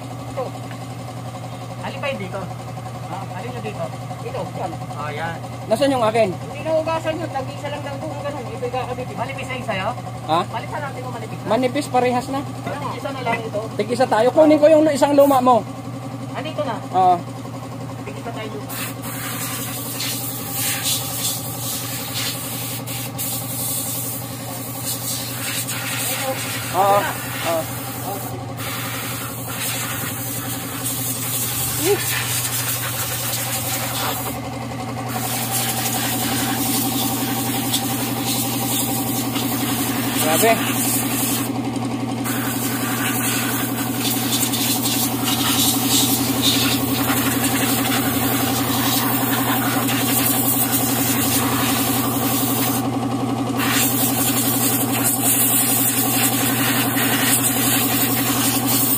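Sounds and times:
air compressor humming: 0.0s - 58.9s
engine idling: 0.0s - 58.9s
compressed air blasts: 18.7s - 34.4s, 35.1s - 41.5s, 42.2s - 52.8s, 53.6s - 58.9s.

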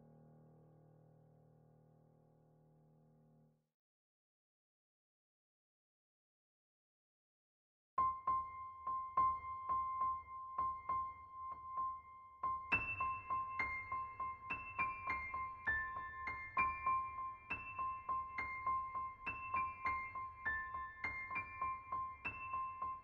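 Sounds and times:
piano music: 8.0s - 23.0s.

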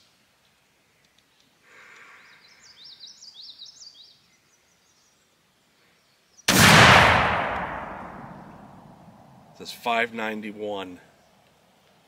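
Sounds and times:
small bird chirping: 2.0s - 5.3s
shotgun shot: 6.5s - 9.1s.

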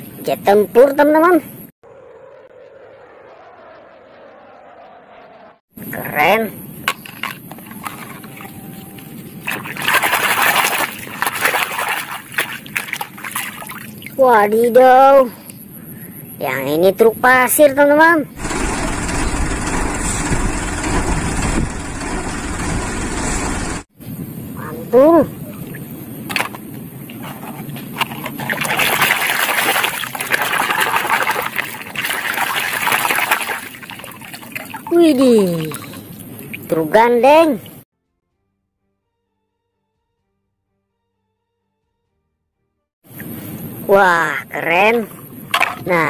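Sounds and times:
water splashing and sloshing: 6.8s - 14.4s, 25.6s - 36.8s, 45.0s - 46.0s.

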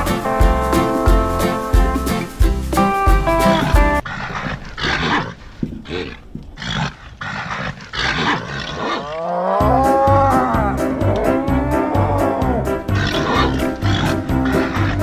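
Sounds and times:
bull grunting: 3.5s - 15.0s
bull mooing: 3.7s - 15.0s.

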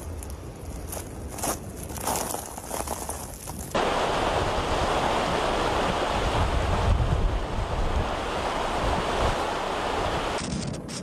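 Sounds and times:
storm wind: 3.5s - 11.0s
wind buffeting microphone: 3.5s - 11.0s
surf breaking: 3.8s - 10.4s.

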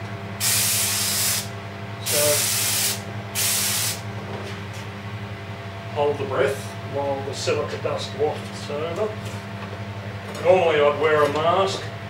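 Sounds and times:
extraction fan humming: 0.0s - 12.0s
spray gun hissing: 0.4s - 4.0s.

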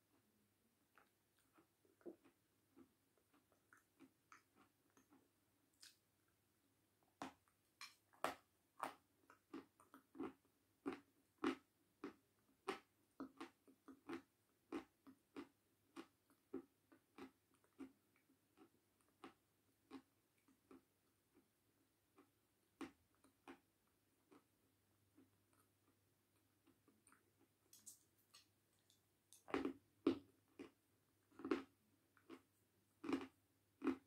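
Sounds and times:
person chewing crunchy food: 0.9s - 6.2s, 7.1s - 34.0s.

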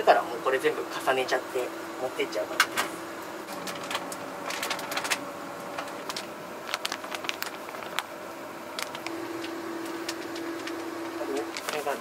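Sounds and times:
flour bag crinkling: 5.8s - 8.1s, 8.7s - 9.5s, 11.4s - 12.0s.

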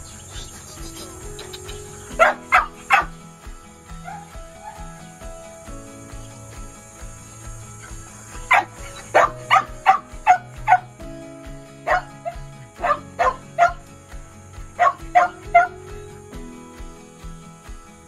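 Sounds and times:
background music: 0.0s - 18.0s
dog barking sharply: 2.2s - 3.1s, 8.5s - 10.9s, 11.9s - 13.8s, 14.8s - 15.8s.

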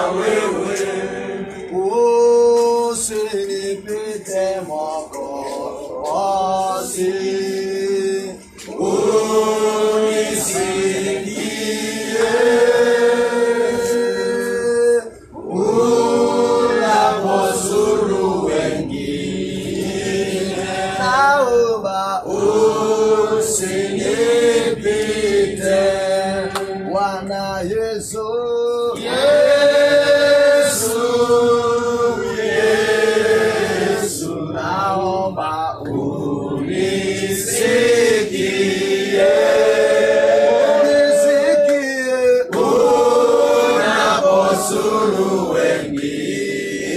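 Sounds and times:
group singing a hymn: 0.0s - 46.9s.

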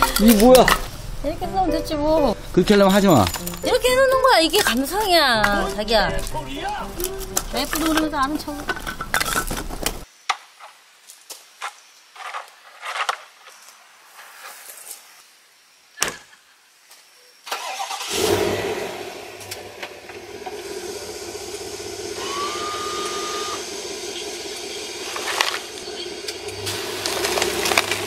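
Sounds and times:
car engine starting and idling: 17.5s - 28.0s
rising tone: 18.6s - 27.8s.

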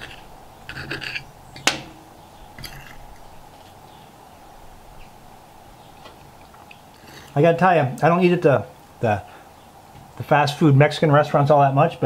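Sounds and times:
cutlery scraping a plate: 0.0s - 2.0s, 2.6s - 3.0s
faint background noise: 0.0s - 12.0s.

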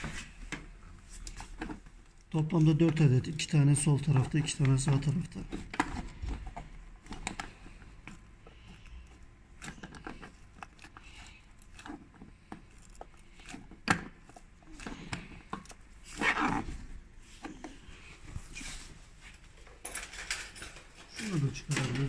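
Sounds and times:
hard plastic clicks and scrapes: 4.2s - 16.7s.

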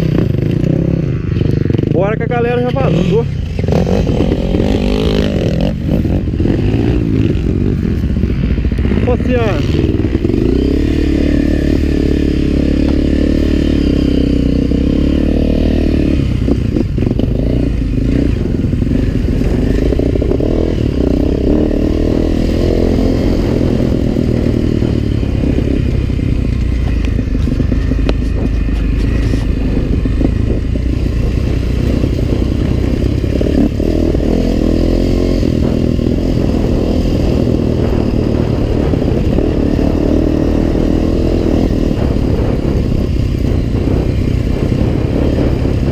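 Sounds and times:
dirt bike engine revving: 0.0s - 45.9s
bike rattling over rough ground: 24.3s - 36.4s.

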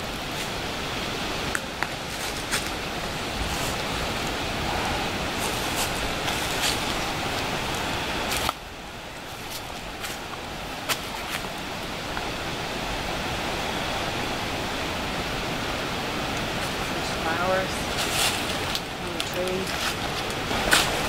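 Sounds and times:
steady hiss: 0.0s - 21.0s
footsteps on dry leaves: 1.9s - 4.1s, 4.8s - 8.5s, 17.6s - 21.0s.

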